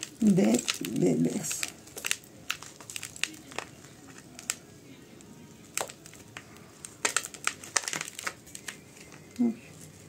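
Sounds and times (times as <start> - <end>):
soil crackling and clicking: 0.0 - 9.9.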